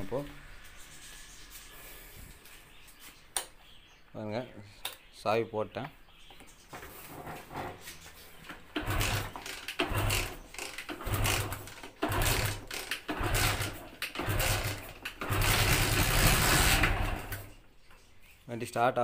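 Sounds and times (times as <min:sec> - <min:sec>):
motorcycle engine starting: 0:08.6 - 0:17.5.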